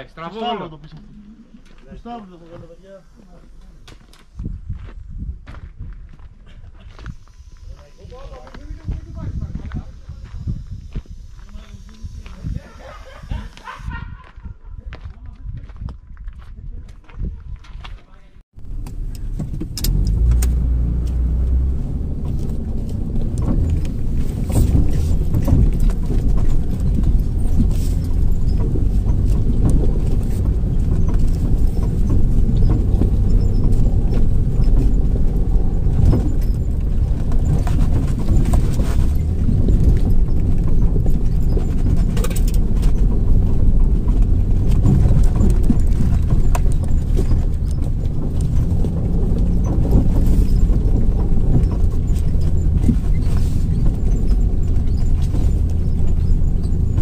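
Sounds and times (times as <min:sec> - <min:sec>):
engine and drivetrain rumble: 0:00.0 - 0:14.2, 0:18.4 - 0:57.0
suspension knocks and rattles: 0:18.6 - 0:57.0.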